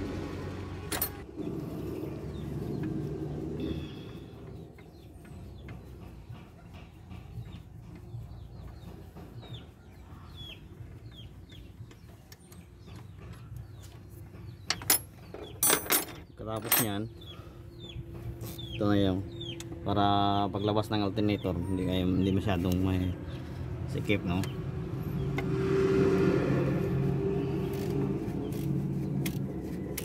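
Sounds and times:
sharp metallic clanks: 14.6 - 17.1.

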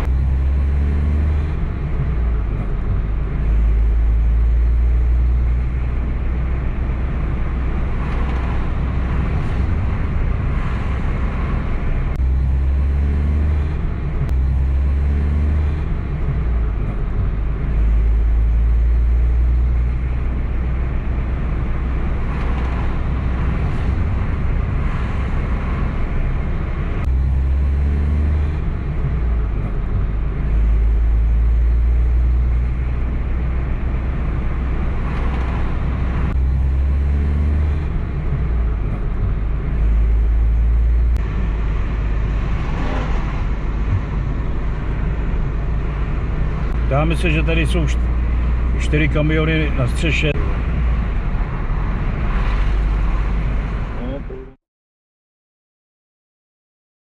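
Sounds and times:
heavy low rumble: 0.0 - 54.6
tyre and engine rumble in car: 0.0 - 54.6.

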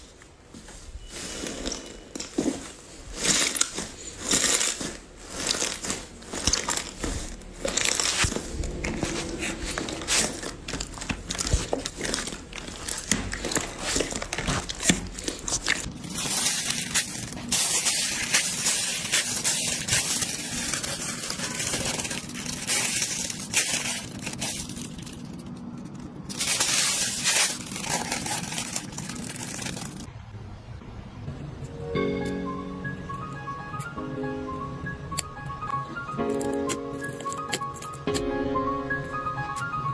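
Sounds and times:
slime squishing: 3.2 - 30.1.

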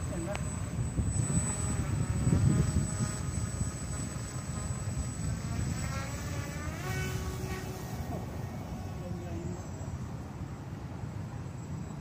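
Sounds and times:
model plane motor buzzing: 0.0 - 10.4
wind rumbling on microphone: 0.0 - 12.0.

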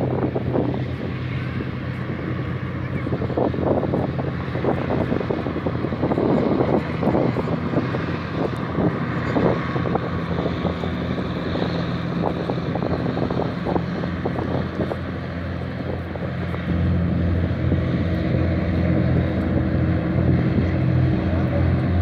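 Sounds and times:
hovercraft engines droning: 0.0 - 22.0.

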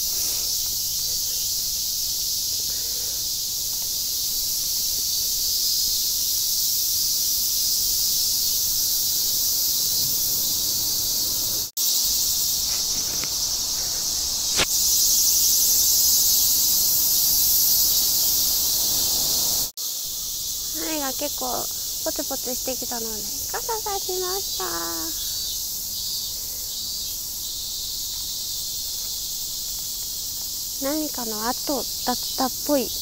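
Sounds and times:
insects shrilling: 0.0 - 33.0.

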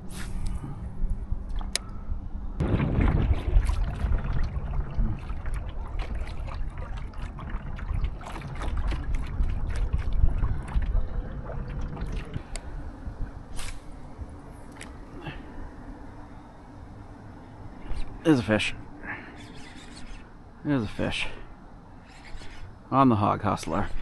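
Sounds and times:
low rumble: 0.0 - 14.7
water sloshing around a canoe: 2.6 - 12.5
small splashes and clicks: 3.3 - 12.7.

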